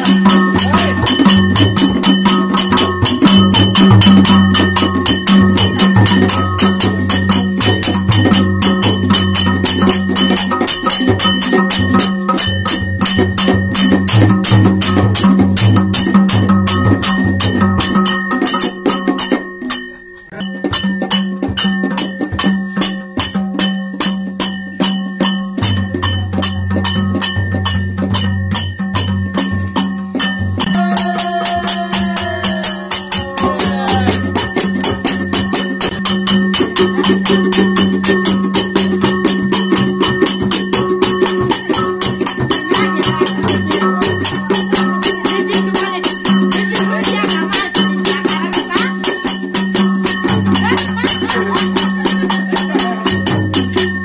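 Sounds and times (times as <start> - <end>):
hand drums playing: 0.0 - 54.0
rattling jingling: 26.6 - 54.0.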